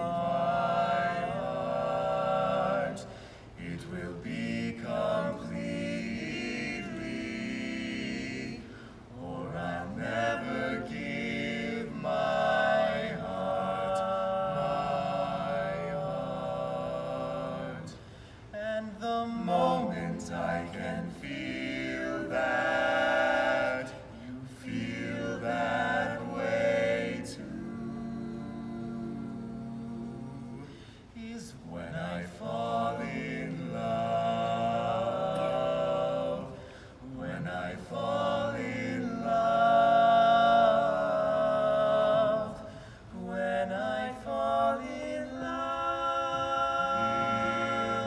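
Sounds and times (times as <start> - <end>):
men singing in close harmony: 0.0 - 48.0.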